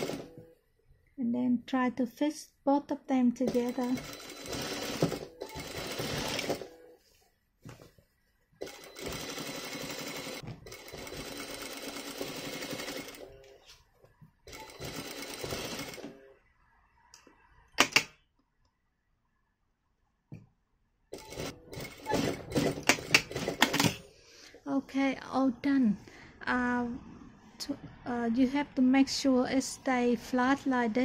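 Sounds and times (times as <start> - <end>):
sewing machine stitching: 0.0 - 0.4, 3.4 - 6.8, 8.6 - 13.6, 14.5 - 16.3, 21.1 - 24.1.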